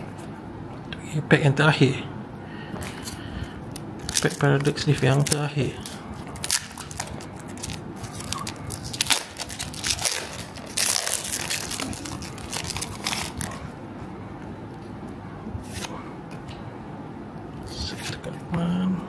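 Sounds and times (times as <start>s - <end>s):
handling of cards: 2.8s - 13.7s
foil wrapper crinkling and tearing: 4.0s - 13.6s.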